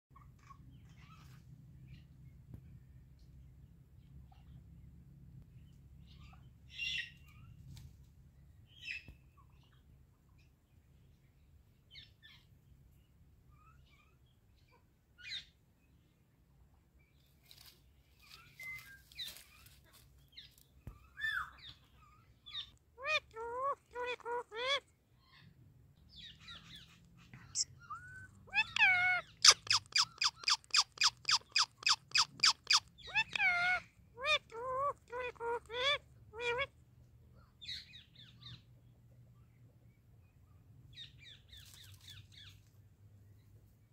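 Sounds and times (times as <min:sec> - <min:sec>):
parakeet calling and squawking: 0:22.5 - 0:25.4, 0:27.6 - 0:36.7.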